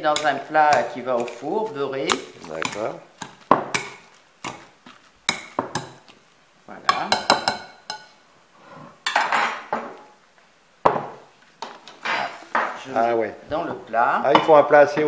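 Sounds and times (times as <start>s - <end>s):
masher clinking on glass bowl: 0.0s - 1.5s.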